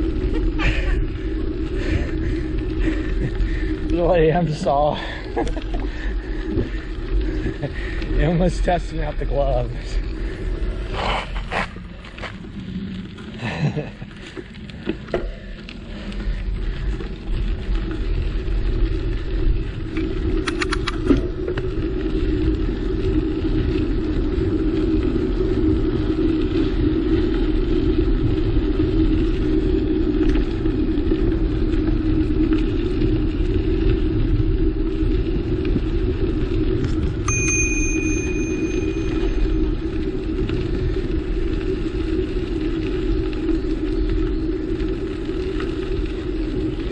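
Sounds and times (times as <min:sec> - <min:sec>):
bicycle tyres on gravel: 0:00.0 - 0:46.9
wind buffeting microphone: 0:00.0 - 0:46.9
clatter of clicks: 0:20.4 - 0:21.2
short high ringing tone: 0:37.3 - 0:39.6.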